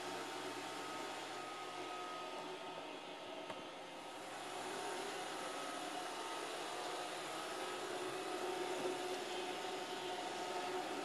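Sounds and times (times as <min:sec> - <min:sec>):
robot vacuum running: 0:04.2 - 0:11.0.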